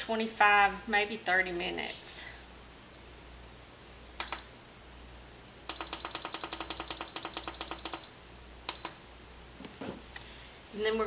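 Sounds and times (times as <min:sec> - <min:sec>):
control panel beeping: 0:04.2 - 0:04.6, 0:05.7 - 0:09.2.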